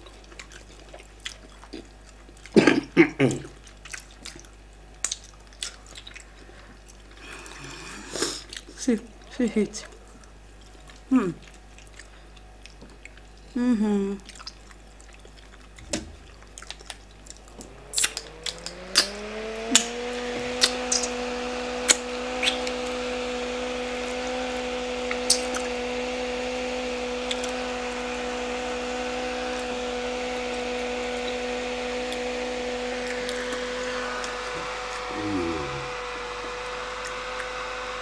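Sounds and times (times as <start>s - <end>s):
wet squishes of eating: 0.0s - 2.6s, 3.4s - 7.2s, 10.1s - 13.5s, 14.2s - 19.2s
handheld fan motor whine: 17.5s - 38.0s.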